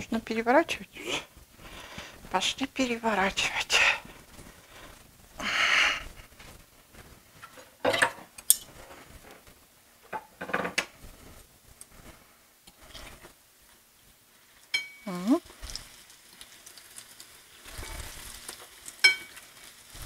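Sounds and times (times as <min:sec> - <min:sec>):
metal utensil scraping a frying pan: 0:17.6 - 0:19.5.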